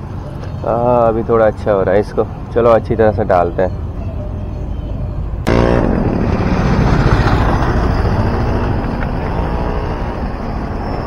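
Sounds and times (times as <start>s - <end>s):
vehicle low rumble: 0.0s - 11.0s
pitched engine note: 5.4s - 11.0s.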